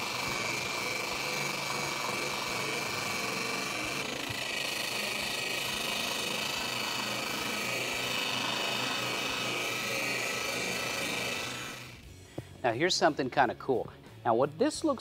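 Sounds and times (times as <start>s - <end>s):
disc scrubbing metal: 0.0s - 12.0s
polisher motor whine: 0.0s - 12.1s.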